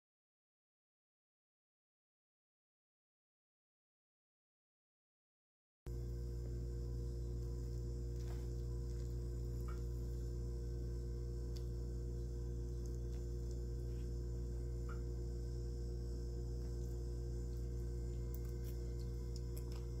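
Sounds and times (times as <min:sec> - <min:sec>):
steady low hum: 0:05.9 - 0:20.0.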